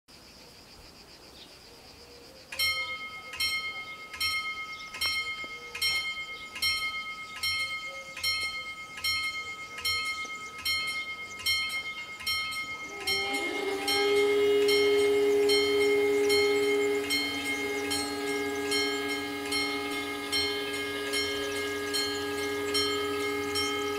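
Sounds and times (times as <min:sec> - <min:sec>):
level crossing bells ringing: 0:02.6 - 0:23.9
steady humming tone: 0:02.7 - 0:23.9.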